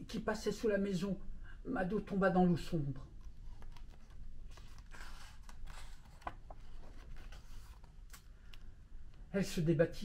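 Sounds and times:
paper rustling: 3.2s - 8.6s
page turning: 3.2s - 8.7s.

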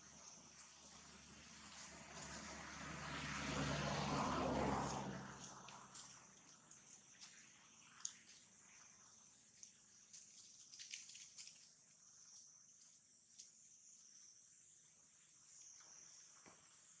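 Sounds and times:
faint high insect drone: 0.0s - 17.0s.

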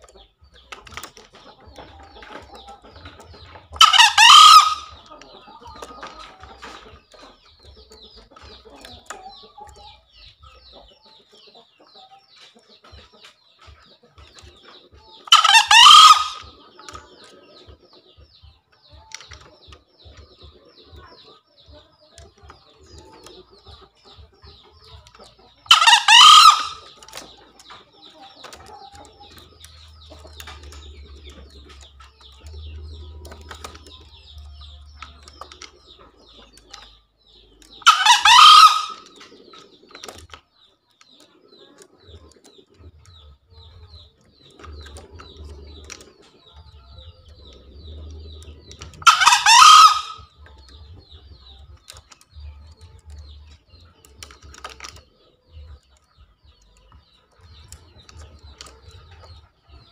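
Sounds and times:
junglefowl crowing: 3.8s - 5.1s, 15.3s - 16.5s, 25.6s - 26.9s, 37.8s - 39.1s, 49.0s - 50.3s.

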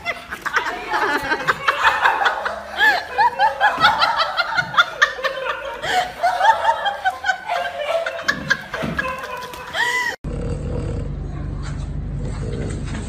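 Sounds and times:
person giggling: 0.0s - 10.2s.

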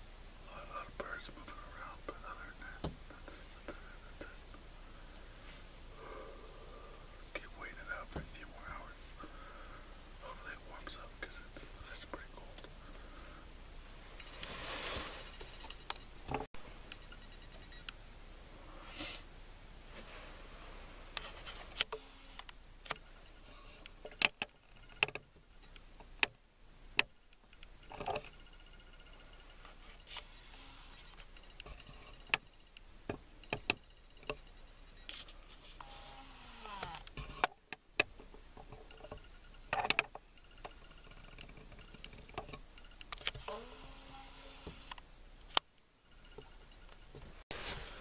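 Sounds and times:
faint hiss: 0.0s - 24.5s, 47.2s - 48.0s.

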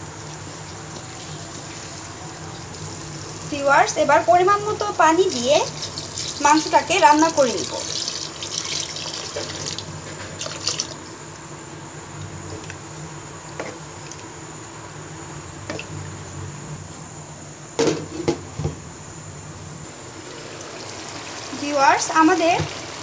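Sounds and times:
water pouring into a pan: 5.2s - 11.0s, 20.1s - 23.0s.

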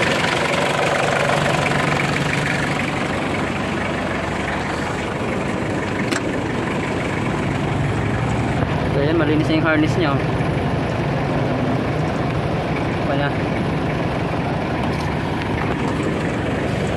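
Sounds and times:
diesel engine idling: 0.0s - 16.9s.

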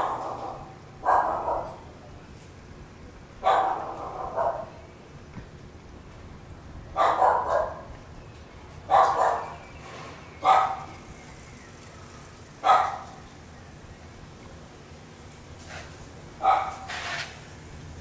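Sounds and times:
loud bark-like animal calls: 0.0s - 2.0s, 3.4s - 4.8s, 6.9s - 7.9s, 8.9s - 9.6s, 10.4s - 11.0s, 12.6s - 13.3s, 16.4s - 17.2s.

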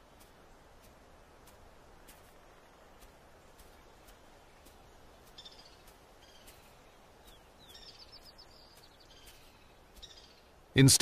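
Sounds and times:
small bird chirps: 4.6s - 10.6s.

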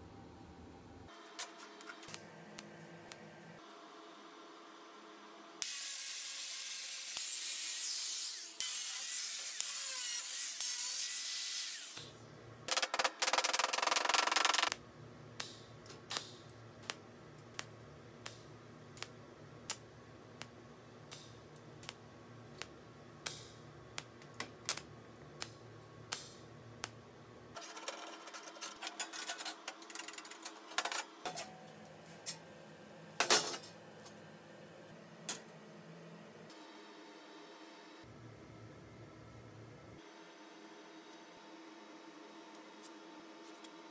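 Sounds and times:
welding hiss and crackling: 5.6s - 12.2s, 12.8s - 14.8s, 15.4s - 27.0s.

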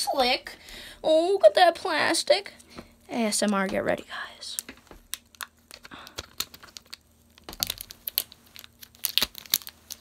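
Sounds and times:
plastic packaging crinkling: 4.6s - 10.0s.

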